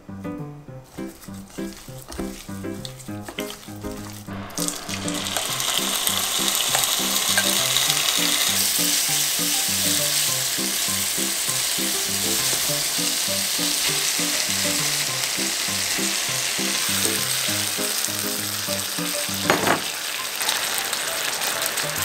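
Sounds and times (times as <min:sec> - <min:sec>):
soft background music: 0:00.0 - 0:22.0
pork sizzling in oil: 0:00.9 - 0:22.0.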